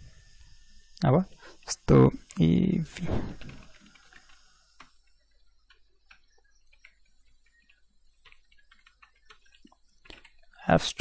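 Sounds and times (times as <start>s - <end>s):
keyboard typing: 5.6s - 10.5s.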